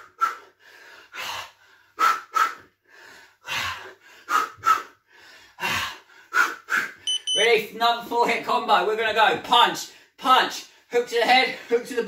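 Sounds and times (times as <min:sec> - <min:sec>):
man breathing hard: 0:00.0 - 0:07.0.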